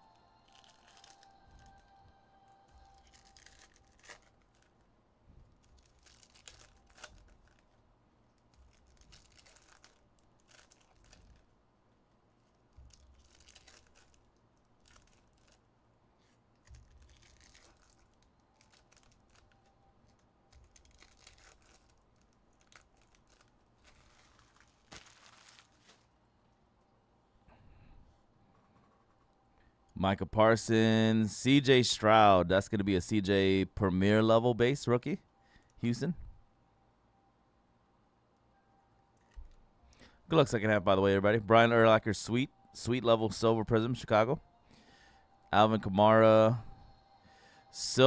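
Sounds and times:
foil wrappers tearing: 0.5s - 1.8s, 2.7s - 4.8s, 5.6s - 7.8s, 8.4s - 11.5s, 12.8s - 15.6s, 16.2s - 26.1s.

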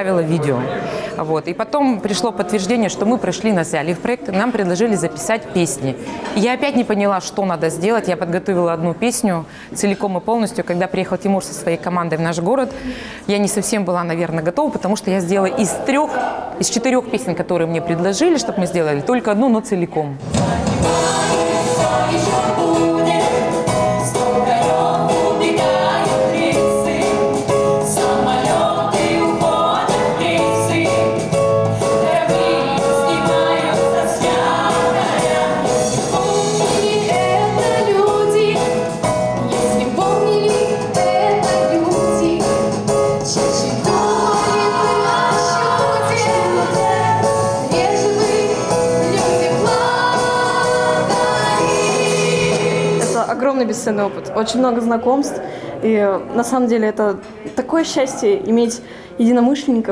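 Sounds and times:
mixed group singing: 20.3s - 53.3s.

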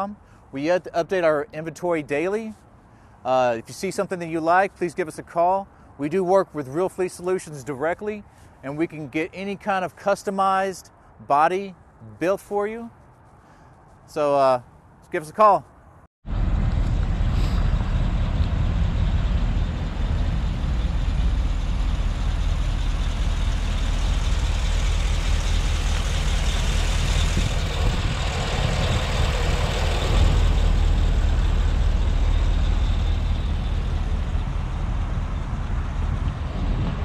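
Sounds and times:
truck engine idling: 16.3s - 37.0s.

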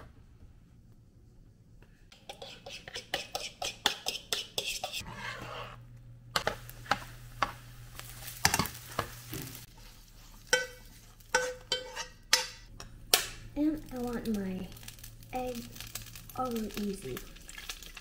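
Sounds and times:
metal utensil scraping frying pan: 2.1s - 5.8s, 6.4s - 12.8s
eggs sizzling: 2.1s - 18.0s
utensil tapping on pan: 2.2s - 5.0s.

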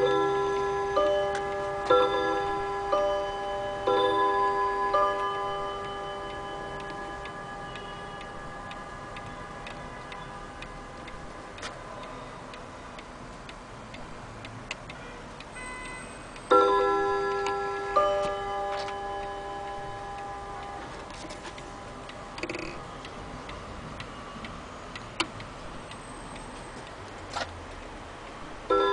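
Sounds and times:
clock chime ringing: 0.0s - 11.6s, 15.5s - 22.0s, 28.7s - 28.9s
pendulum clock ticking: 0.0s - 28.9s.

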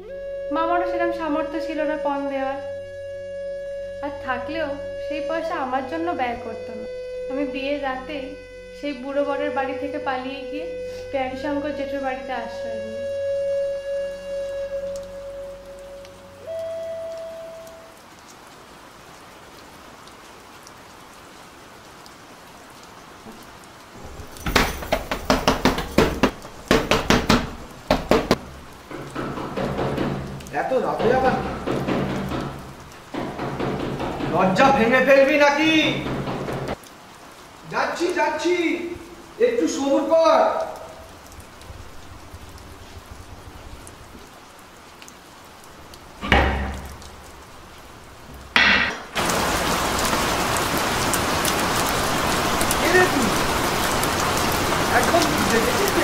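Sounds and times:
steady rain: 0.0s - 56.0s
loud banging on a door: 24.0s - 36.8s, 46.2s - 47.2s.

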